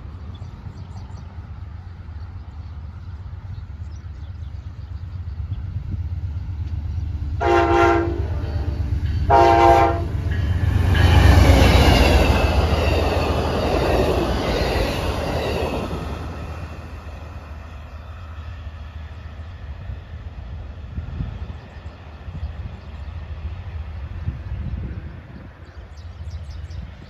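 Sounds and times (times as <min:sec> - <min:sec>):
train running past: 0:00.0 - 0:27.0
train horn blasts: 0:07.4 - 0:10.5.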